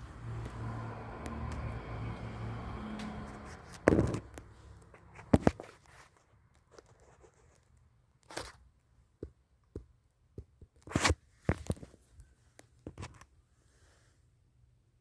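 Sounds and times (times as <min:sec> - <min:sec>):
phone handling scrapes and rustles: 0:03.4 - 0:07.6, 0:08.2 - 0:08.6, 0:10.8 - 0:12.0.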